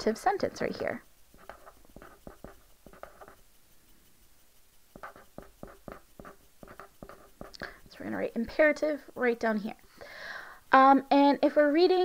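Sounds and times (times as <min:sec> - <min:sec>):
pen scratching on paper: 0:00.6 - 0:03.5, 0:04.9 - 0:08.6.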